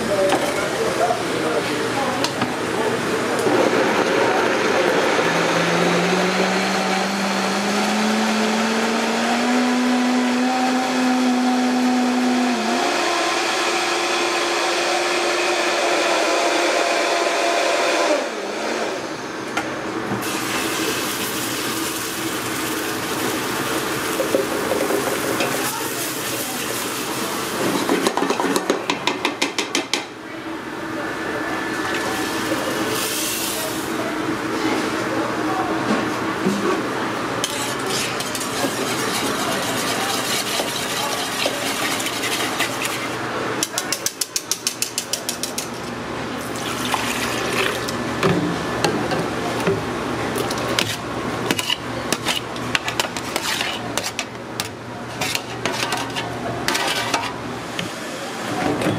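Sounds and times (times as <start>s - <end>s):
blender motor whining: 3.5s - 19.2s.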